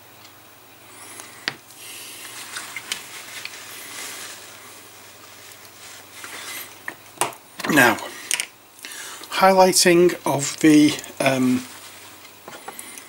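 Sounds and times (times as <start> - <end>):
rustling: 0.9 - 7.0, 10.4 - 13.0.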